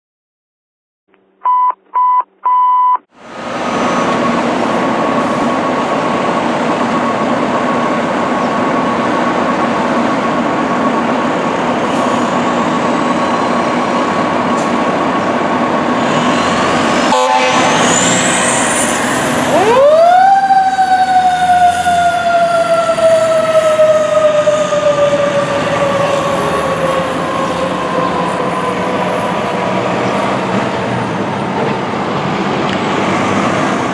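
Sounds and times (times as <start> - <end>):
short beeps: 1.4 - 3.1
diesel engine pulling away: 3.1 - 33.9.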